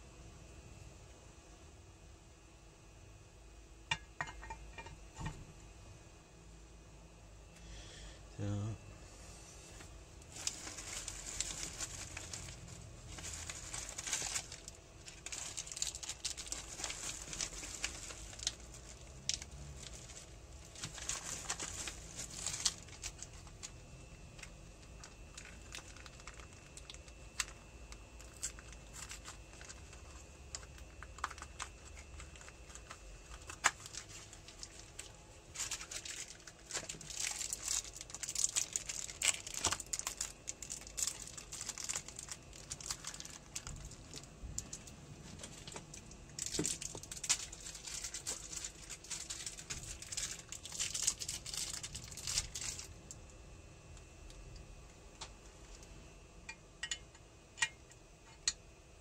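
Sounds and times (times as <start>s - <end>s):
packaging crinkling and rustling: 9.8s - 53.2s.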